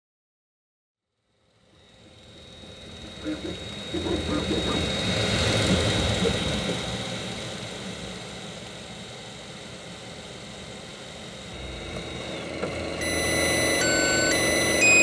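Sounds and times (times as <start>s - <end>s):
high whine: 1.7s - 15.0s
printer mechanical hum: 2.1s - 7.0s, 11.4s - 15.0s
electronic beeping tones: 11.5s - 15.0s.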